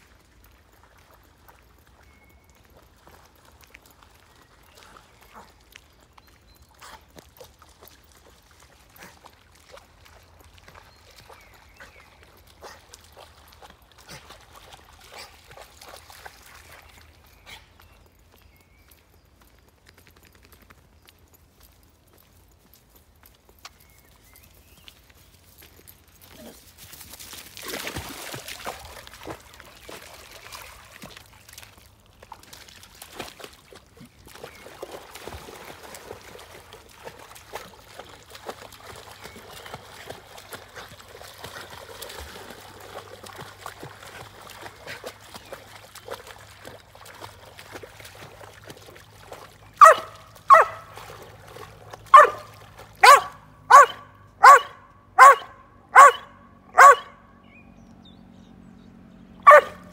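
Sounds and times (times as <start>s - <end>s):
dog splashing through water: 0.0s - 18.6s, 24.5s - 57.1s
dog barking: 49.8s - 50.9s, 52.1s - 57.2s, 59.4s - 59.9s.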